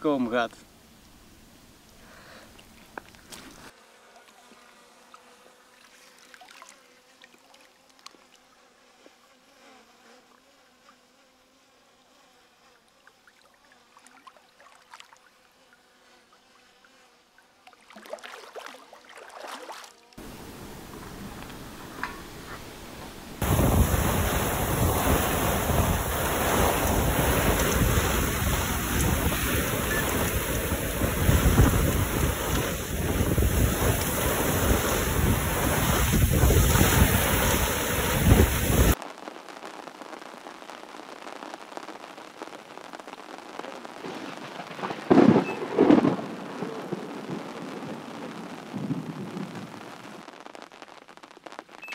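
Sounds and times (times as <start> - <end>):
lake water churning: 13.3 - 15.3, 17.7 - 39.0
heavy rain: 20.2 - 51.9
wind hitting the microphone: 20.5 - 39.0.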